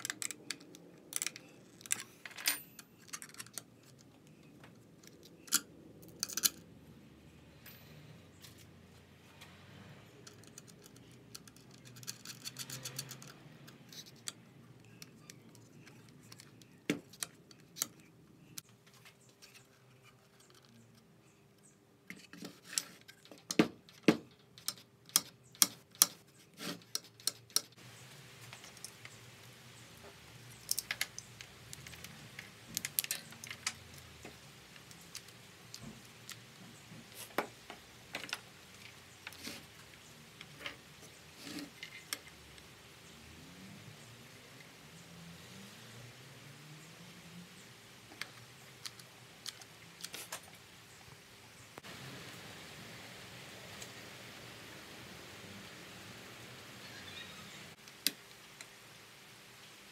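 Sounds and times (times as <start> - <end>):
clicks and knocks of wood and metal: 0.0 - 6.7, 10.2 - 27.8, 30.0 - 42.7
small metal parts clinking: 0.0 - 6.7, 10.2 - 18.6, 30.5 - 36.4.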